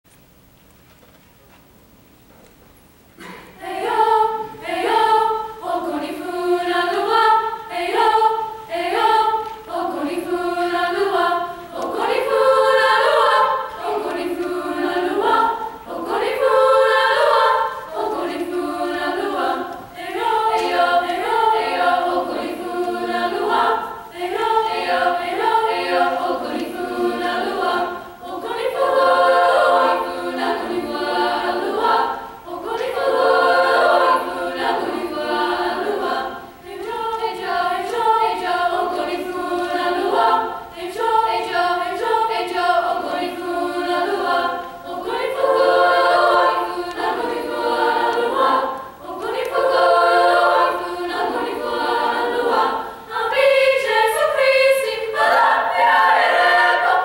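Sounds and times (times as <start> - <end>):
girls' choir singing a cappella: 3.2 - 57.0.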